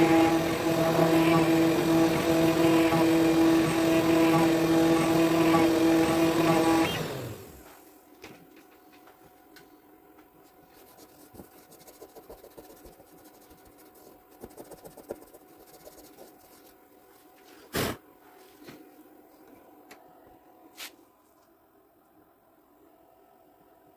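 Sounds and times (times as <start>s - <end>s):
hand rubbing wood: 10.5s - 16.8s.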